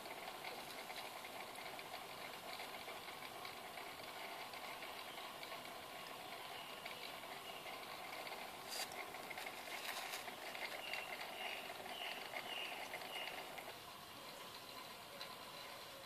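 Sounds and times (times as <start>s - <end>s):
aquarium water bubbling: 0.0s - 16.0s.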